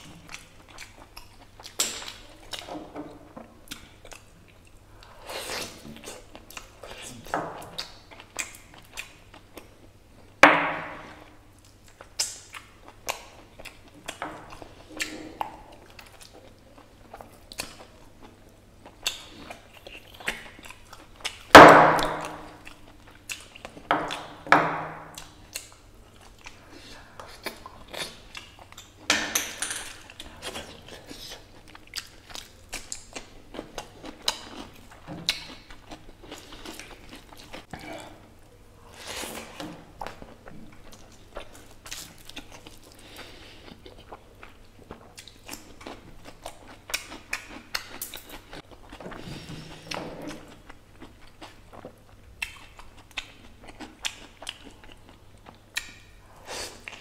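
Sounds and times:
wet chewing and mouth clicks: 3.6s - 9.9s, 11.6s - 24.4s, 30.0s - 38.0s, 39.1s - 56.2s.

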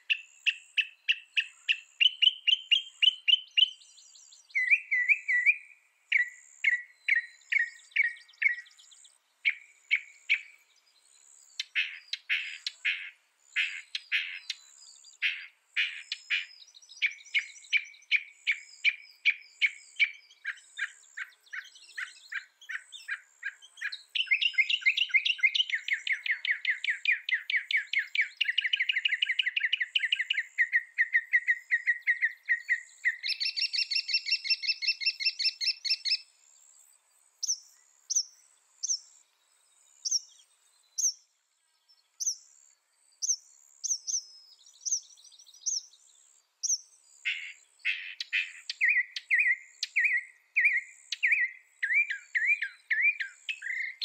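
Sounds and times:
mockingbird singing: 0.0s - 36.3s, 37.4s - 39.2s, 40.0s - 41.3s, 43.2s - 54.0s.

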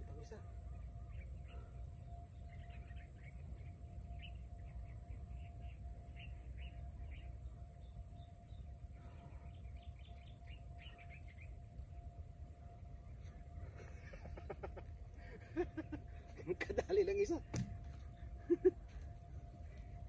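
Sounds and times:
small birds chirping: 0.1s - 11.6s.

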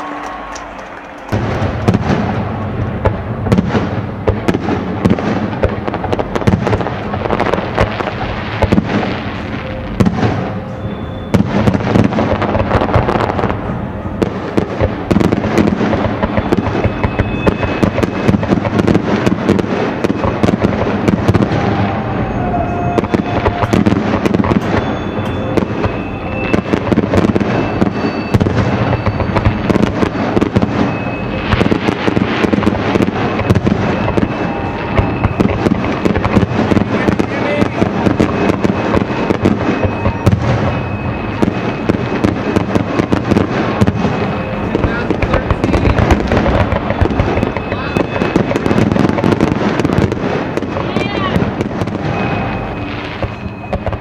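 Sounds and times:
fireworks bursting and crackling: 0.0s - 54.0s.

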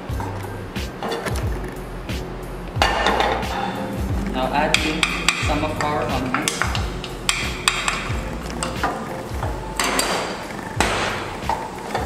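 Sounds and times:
ceramic bowl knocking on pan: 4.7s - 9.0s.

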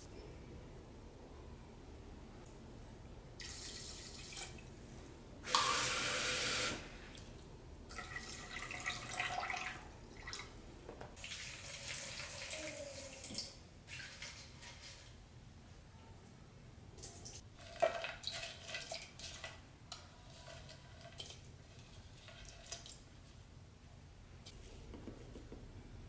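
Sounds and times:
water poured into pot: 7.9s - 10.5s, 11.2s - 14.2s.

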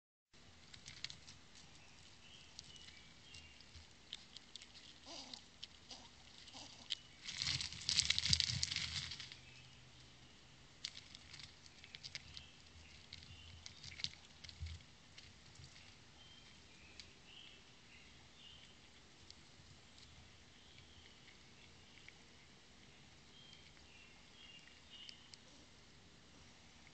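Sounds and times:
nuts and paws tapping on rock: 0.6s - 9.8s, 10.8s - 17.5s
animals scrabbling: 0.7s - 9.6s.

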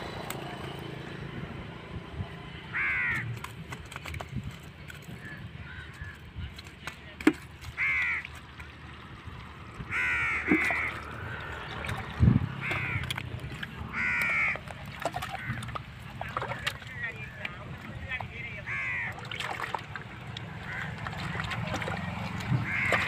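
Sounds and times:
crow cawing: 2.7s - 3.4s, 7.8s - 8.3s, 9.9s - 11.4s, 12.6s - 13.2s, 13.9s - 15.8s, 18.6s - 19.2s, 20.6s - 21.4s, 22.6s - 23.0s.

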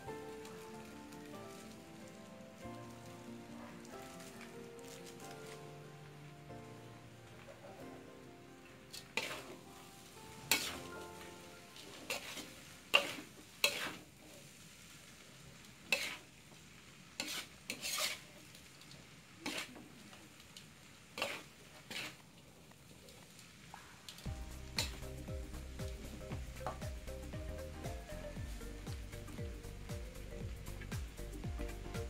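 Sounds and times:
low steady sizzle: 0.0s - 32.0s
metal spatula scraping wok: 9.0s - 9.6s, 10.4s - 11.0s, 11.8s - 14.3s, 15.9s - 16.3s, 17.2s - 18.4s, 19.4s - 19.9s, 21.2s - 22.2s.

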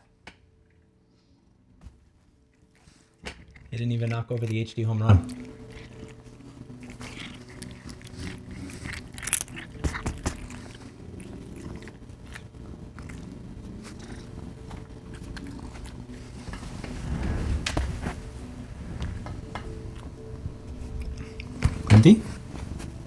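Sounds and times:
cat purring: 2.6s - 23.0s.

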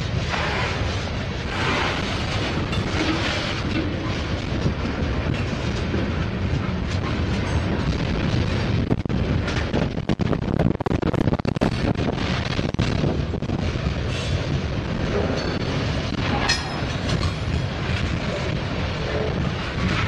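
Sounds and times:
wheels clicking over rail joints: 0.0s - 10.8s, 11.6s - 20.0s
freight train wheels rumbling: 0.0s - 20.0s.

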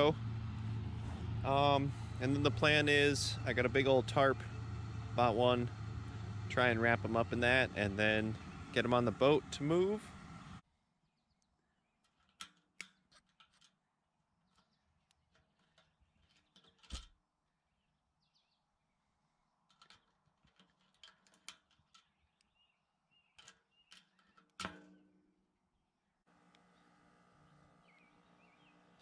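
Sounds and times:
small metallic clicks and taps: 12.0s - 13.8s, 19.6s - 22.6s, 23.3s - 25.0s.

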